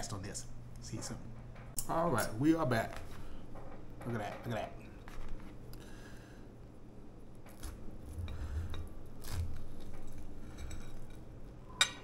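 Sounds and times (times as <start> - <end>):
knife and fork scraping a plate: 7.5 - 12.0.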